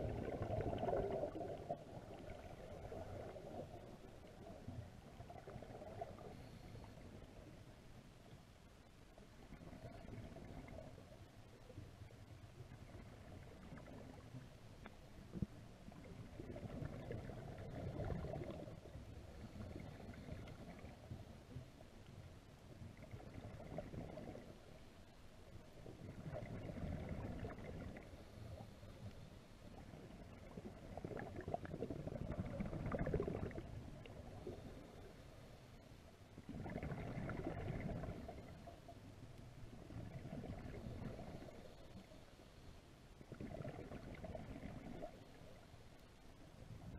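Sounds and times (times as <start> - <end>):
low underwater rumble: 0.0 - 46.9
underwater bubbles gurgling: 0.0 - 46.9.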